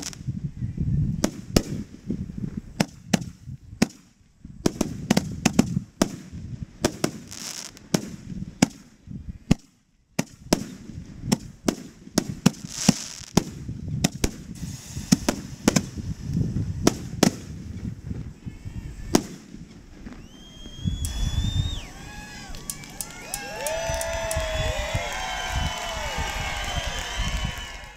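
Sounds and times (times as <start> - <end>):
fireworks bangs: 0.0 - 0.3, 4.6 - 8.9, 10.2 - 27.9
long rising whistle: 20.2 - 27.9.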